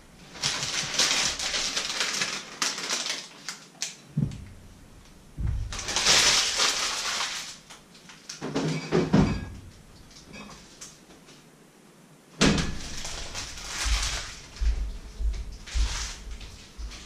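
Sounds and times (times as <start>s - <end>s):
plastic package rustling: 0.2s - 4.0s, 5.6s - 8.4s, 12.6s - 15.0s, 15.6s - 17.0s
refrigerator door opening: 12.4s - 13.2s.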